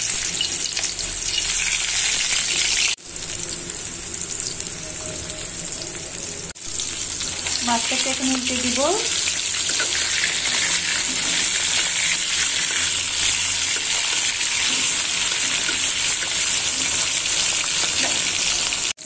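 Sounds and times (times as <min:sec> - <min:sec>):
fish frying in hot oil: 0:00.0 - 0:19.0.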